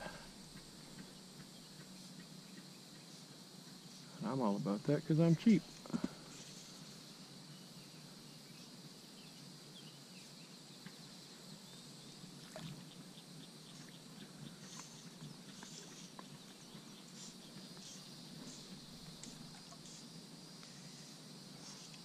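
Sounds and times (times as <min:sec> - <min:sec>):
high insect drone: 0:00.0 - 0:22.0.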